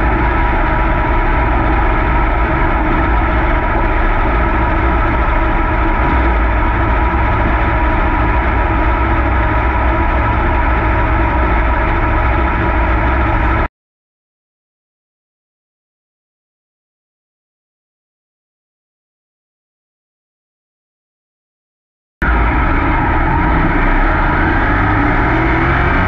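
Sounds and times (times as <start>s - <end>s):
race car engine running loud: 0.0s - 13.7s, 22.2s - 26.0s.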